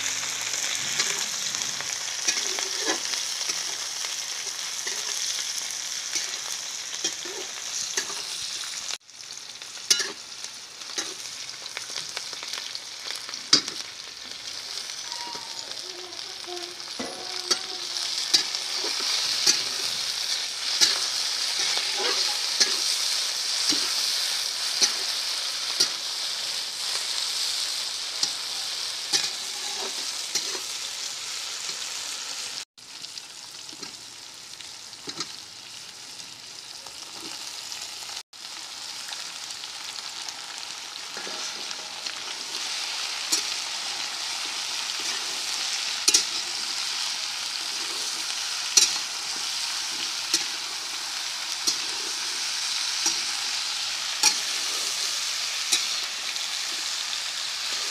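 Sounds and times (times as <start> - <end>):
vegetables sizzling in hot oil: 0.0 - 57.9
metal spatula scraping pan: 0.4 - 5.4, 6.1 - 8.4, 16.5 - 26.1, 28.2 - 30.8, 41.0 - 51.0, 51.6 - 55.0.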